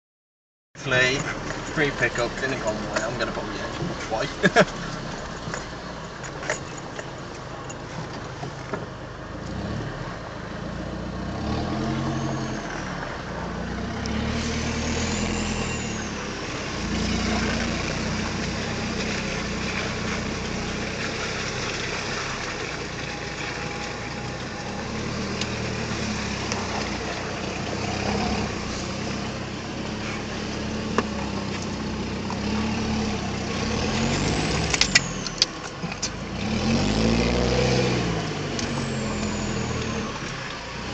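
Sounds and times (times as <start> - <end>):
pickup engine revving: 9.4 - 40.9.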